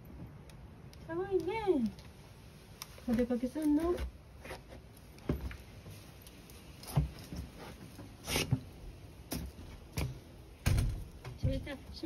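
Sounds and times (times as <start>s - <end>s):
footsteps on wood and stone: 3.0s - 10.3s.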